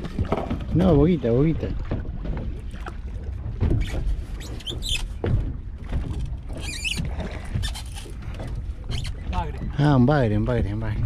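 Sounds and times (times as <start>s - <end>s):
water washing against boat hull: 0.0s - 11.0s
wind: 0.0s - 11.0s
wavering high squeaks: 6.6s - 7.0s.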